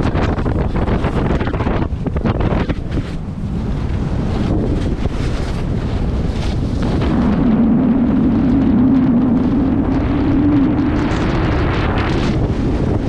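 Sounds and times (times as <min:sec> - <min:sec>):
wind rushing over microphone: 0:00.0 - 0:13.0
snowboard edges scraping snow: 0:04.2 - 0:07.8.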